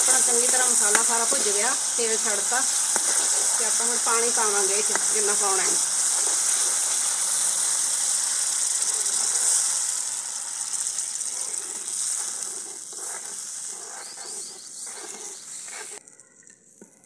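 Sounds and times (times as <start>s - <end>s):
oil sizzling and hissing: 0.0s - 16.0s
ladle strokes in pan: 2.6s - 5.1s.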